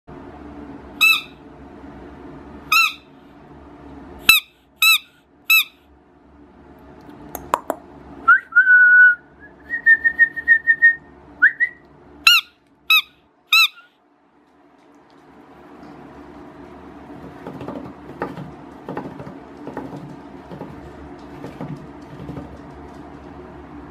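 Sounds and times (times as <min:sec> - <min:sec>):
rubber squeaky toy squeaking: 0:01.0 - 0:01.4, 0:02.7 - 0:03.0, 0:12.3 - 0:13.9.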